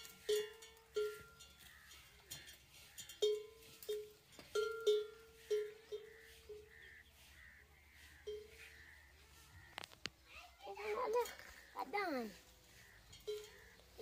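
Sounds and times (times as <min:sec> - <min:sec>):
metal bell clanking: 0:00.0 - 0:06.2.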